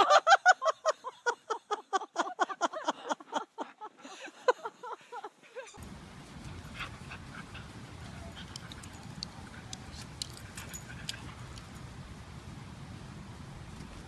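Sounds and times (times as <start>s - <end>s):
low outdoor rumble: 5.8s - 14.0s
dogs yipping and whining: 6.8s - 11.6s
small clicks: 8.4s - 11.8s.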